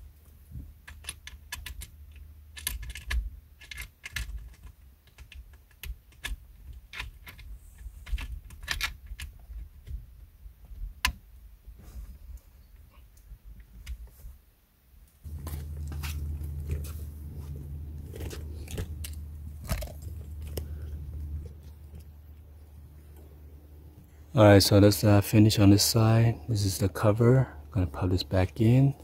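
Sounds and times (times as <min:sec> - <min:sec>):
plastic and metal parts clicking: 0:00.8 - 0:10.0
steady low hum: 0:15.1 - 0:29.0.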